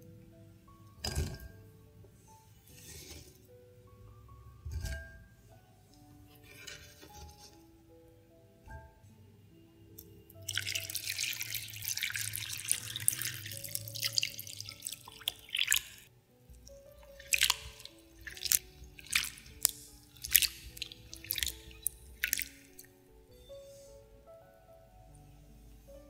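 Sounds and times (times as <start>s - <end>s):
soft background music: 0.0s - 26.0s
water pouring into a glass bowl: 10.4s - 23.0s
hand stirring in water: 10.4s - 23.3s.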